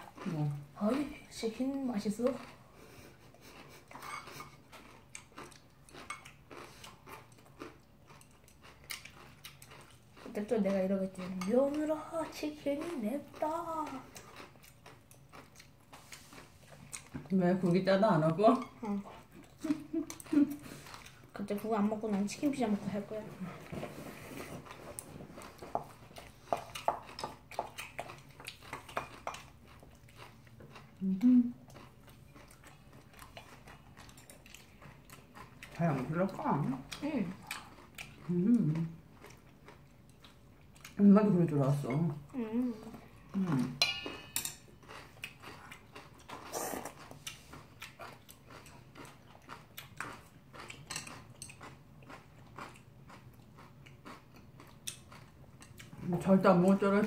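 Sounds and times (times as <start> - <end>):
people chewing and slurping: 0.0 - 17.8, 18.4 - 57.0
spoon clinking in a metal bowl: 43.8 - 44.6.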